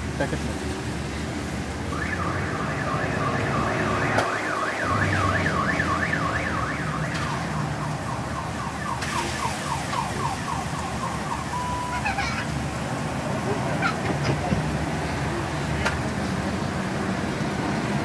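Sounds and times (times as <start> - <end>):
electronic siren sweeping: 1.8 - 12.0.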